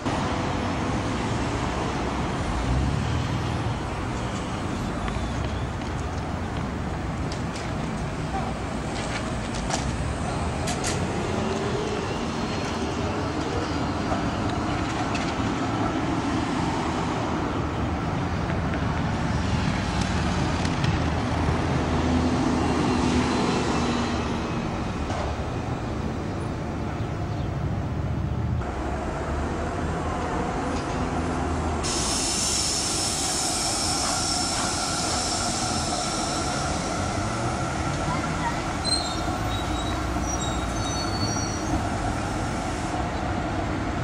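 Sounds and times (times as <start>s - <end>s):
tram wheels and motors rumbling: 0.0s - 44.0s
high tram wheel squeal: 4.2s - 6.3s, 9.7s - 15.3s, 31.8s - 42.4s.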